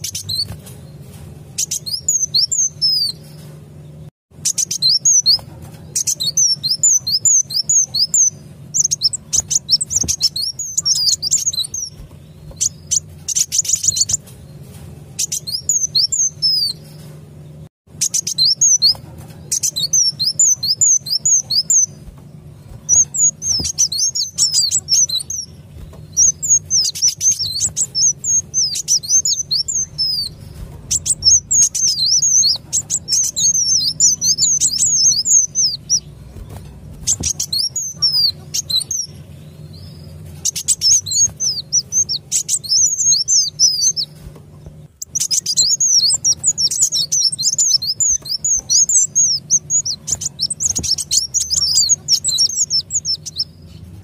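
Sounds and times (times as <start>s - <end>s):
faint low hum: 0.0s - 54.0s
sunbirds twittering chirps: 0.0s - 54.0s.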